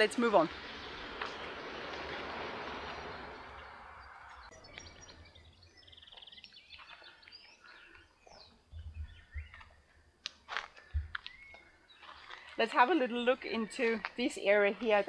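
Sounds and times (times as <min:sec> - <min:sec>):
small birds chirping: 0:00.0 - 0:15.0
soft low thumps: 0:08.7 - 0:09.7, 0:10.9 - 0:11.2.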